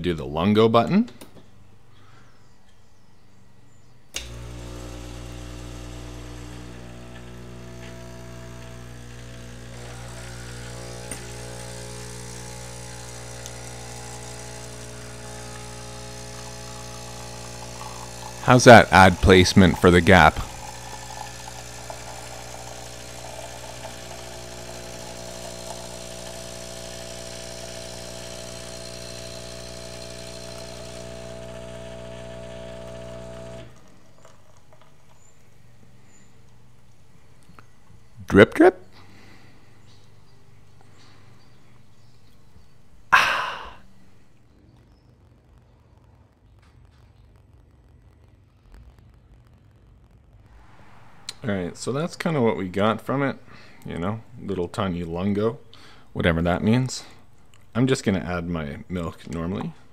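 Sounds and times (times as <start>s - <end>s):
pump buzzing hum: 4.1s - 44.2s
espresso machine pump click: 4.2s - 34.9s.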